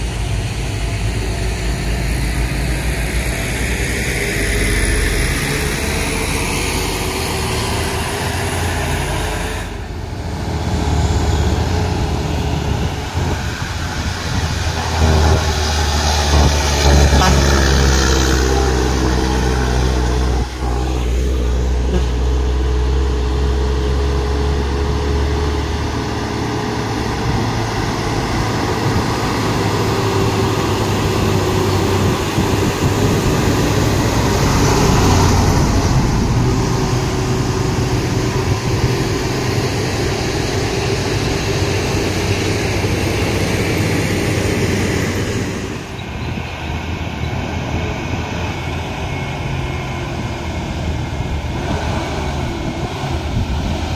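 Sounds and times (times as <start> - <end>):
diesel truck engines under load: 0.0 - 53.9.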